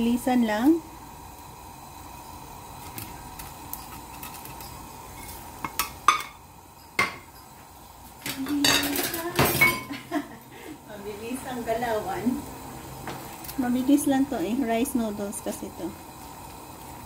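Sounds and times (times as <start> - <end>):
broth simmering in a pan: 0.0 - 17.0
spatula and dish clinking on pan: 3.7 - 7.5, 8.2 - 10.0.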